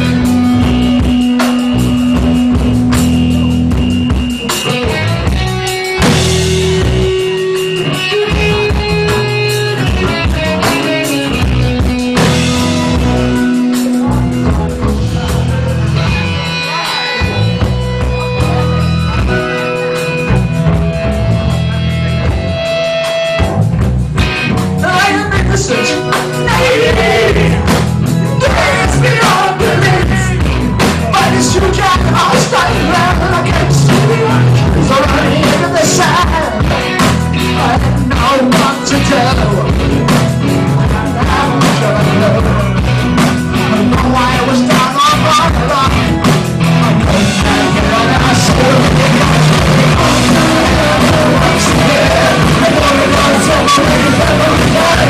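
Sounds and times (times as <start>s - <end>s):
drums: 0.0s - 55.0s
guitar and bass notes: 0.0s - 55.0s
person singing: 24.8s - 42.9s, 43.6s - 55.0s.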